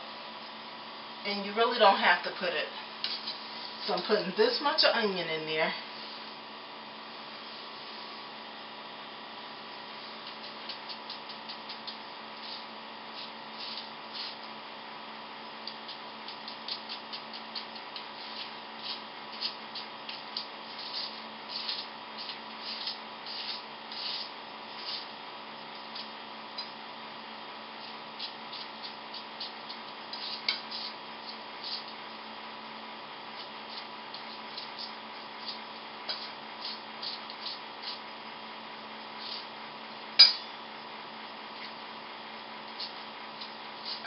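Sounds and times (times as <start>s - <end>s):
electrical hum: 0.0s - 44.0s.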